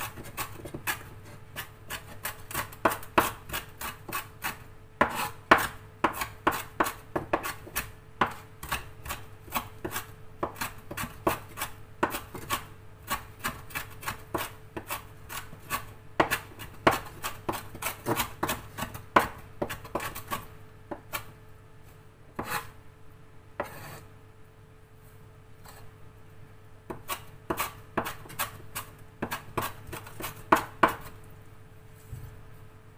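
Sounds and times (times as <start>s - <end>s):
cleaver chopping on wooden board: 2.5s - 21.2s, 22.4s - 22.6s, 26.9s - 28.4s, 29.2s - 31.1s.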